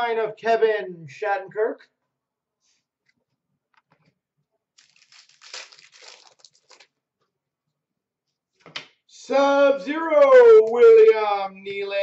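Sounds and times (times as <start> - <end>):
packaging crinkling: 4.8 - 7.0.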